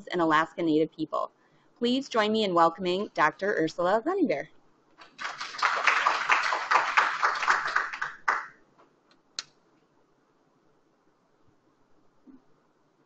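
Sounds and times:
faint room hiss: 0.0 - 13.0
audience applauding: 5.0 - 8.6.

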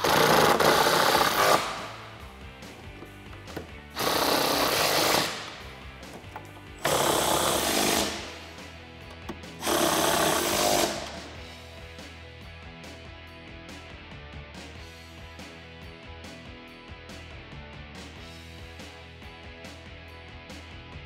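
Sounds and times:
impact driver hammering: 0.0 - 2.2, 2.9 - 8.5, 9.2 - 11.4
background music: 0.0 - 21.0.

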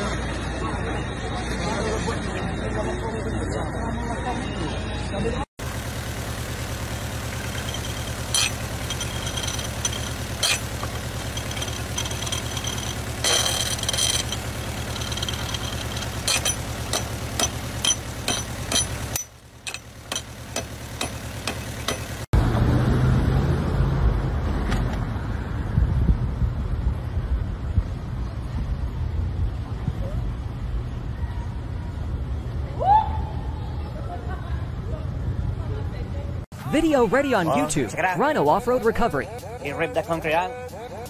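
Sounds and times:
outdoor street noise: 0.0 - 41.0
vehicle engine running: 5.6 - 24.4
metal grinding scrape: 7.3 - 22.0
axe striking metal pulley: 7.4 - 22.2.

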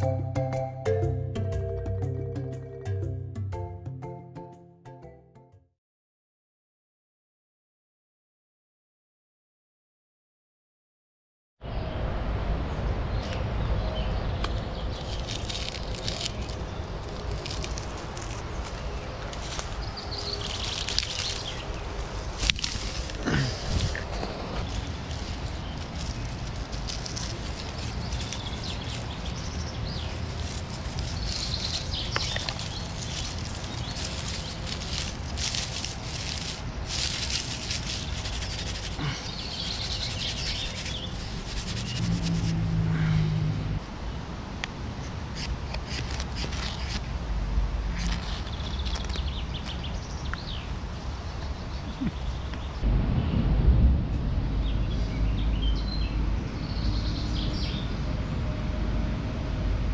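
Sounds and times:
low drone: 11.6 - 44.2, 52.8 - 59.9
birds chirping: 13.1 - 42.2, 48.0 - 53.4
dry twigs and grass crackling: 14.4 - 42.6, 45.4 - 47.1, 47.9 - 50.5.

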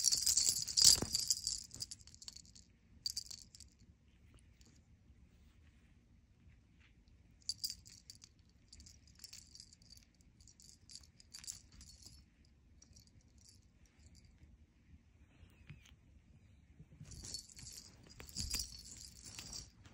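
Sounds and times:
cat toy jingling and rattling: 0.0 - 3.6, 7.5 - 12.2, 17.1 - 19.9.

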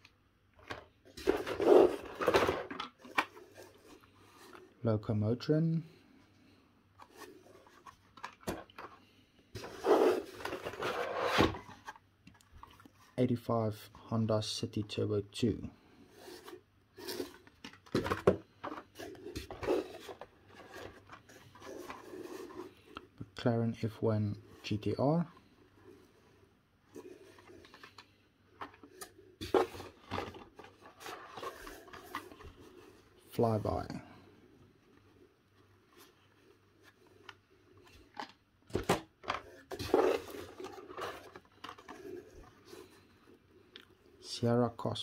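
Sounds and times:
rustling of card and plastic: 0.6 - 4.8, 7.0 - 13.2, 16.1 - 23.2, 23.8 - 34.0, 34.6 - 44.0
card scraping out of box: 1.2 - 2.7, 9.6 - 11.8, 39.6 - 43.0.

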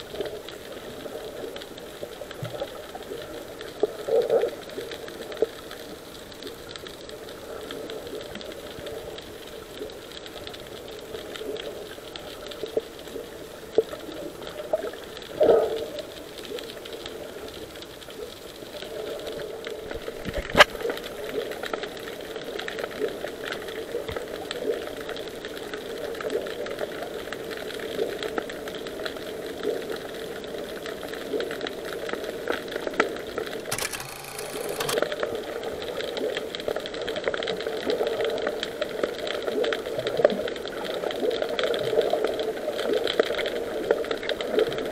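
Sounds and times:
underwater crackling rattle: 0.1 - 44.9
sharp click: 33.6 - 35.0.

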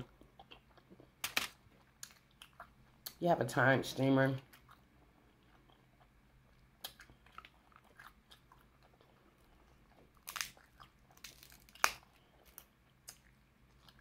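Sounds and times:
crab shell cracking: 1.2 - 2.2, 10.2 - 13.2.

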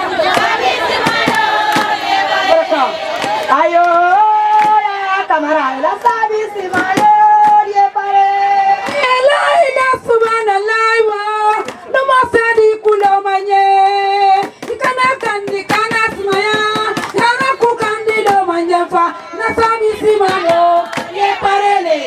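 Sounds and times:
women singing: 0.0 - 22.0
hand claps: 0.2 - 2.0, 3.1 - 4.8, 12.8 - 13.2, 14.4 - 18.5, 20.0 - 21.3.

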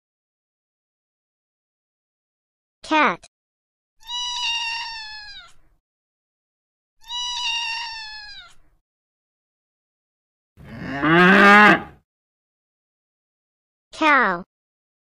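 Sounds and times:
cat meowing: 4.0 - 5.6, 7.0 - 8.6.

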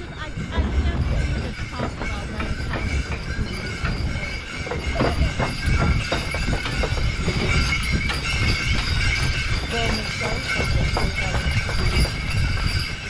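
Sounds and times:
steady low rumble: 0.0 - 6.0
faint sleigh bells ringing: 0.0 - 13.0
hooves clip-clopping through snow: 0.0 - 13.0.

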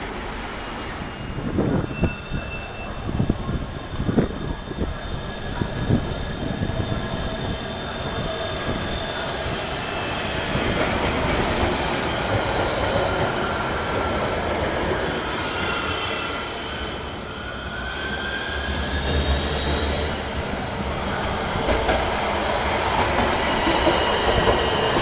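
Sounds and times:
tram rumbling past: 0.0 - 25.0
tram wheel squeal: 0.0 - 25.0.

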